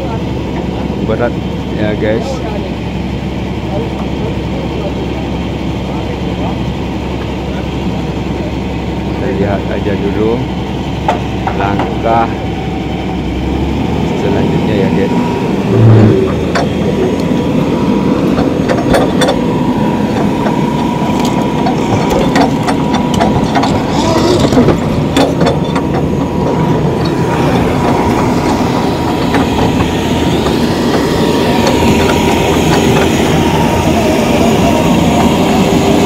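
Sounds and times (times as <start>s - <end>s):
constant whine: 0.0s - 36.0s
excavator diesel engine running: 0.0s - 36.0s
scattered knocks: 15.7s - 17.2s, 20.1s - 33.9s.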